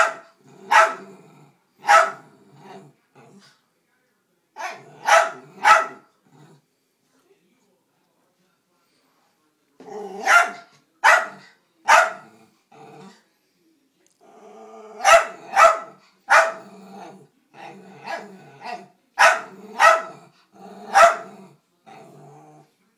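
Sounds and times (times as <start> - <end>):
dog barking: 0.0 - 1.1, 1.8 - 2.3, 4.6 - 6.1, 10.2 - 12.3, 15.0 - 16.7, 18.0 - 20.2, 20.9 - 21.3
dog growling: 0.4 - 3.5, 4.8 - 6.7, 9.8 - 10.3, 12.2 - 13.2, 14.2 - 15.6, 16.4 - 22.7.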